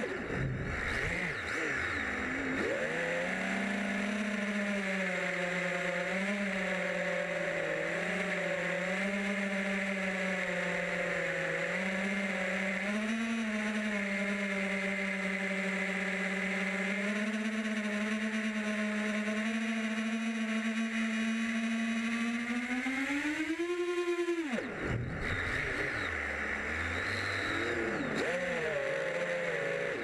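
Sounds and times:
drone propellers whining: 0:00.0 - 0:30.0.

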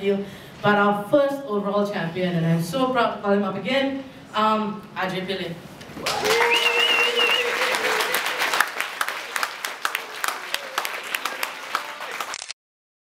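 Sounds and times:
audience applauding: 0:06.0 - 0:12.5.

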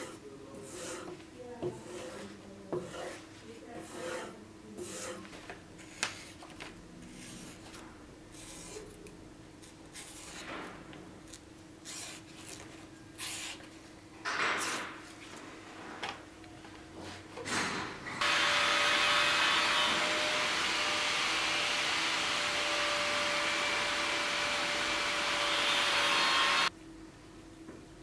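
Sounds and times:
abrasive rubbing strokes: 0:03.8 - 0:05.9.

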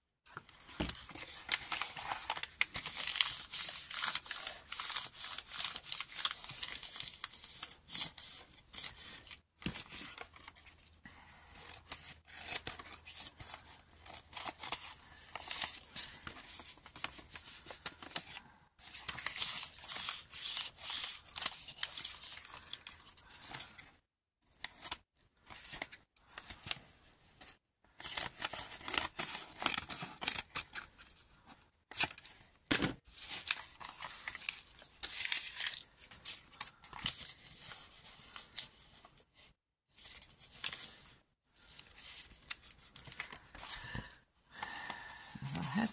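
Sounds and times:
packing paper crinkling: 0:00.5 - 0:10.7, 0:33.1 - 0:38.6.

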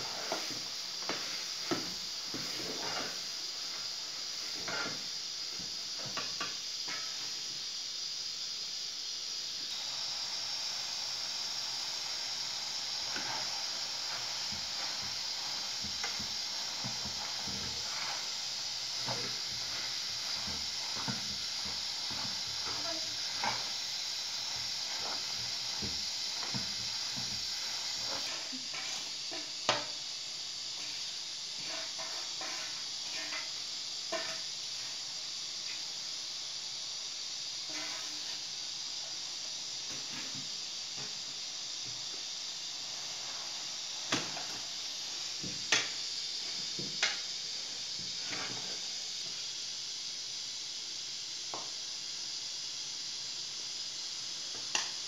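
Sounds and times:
pot of greens hissing: 0:00.0 - 0:55.0
metal spatula scraping pot: 0:31.6 - 0:34.4, 0:37.7 - 0:38.2.

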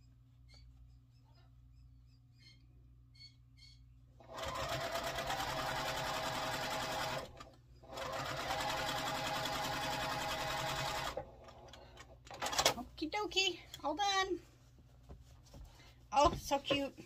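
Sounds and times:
sewing machine stitching: 0:04.2 - 0:12.8.

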